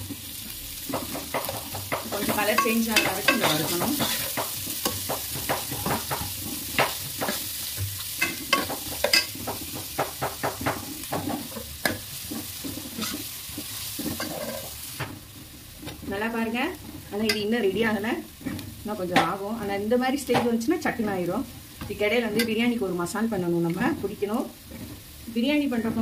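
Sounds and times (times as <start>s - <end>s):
onions sizzling in oil: 0.0s - 26.0s
ladle clacking and scraping pan: 0.8s - 15.1s.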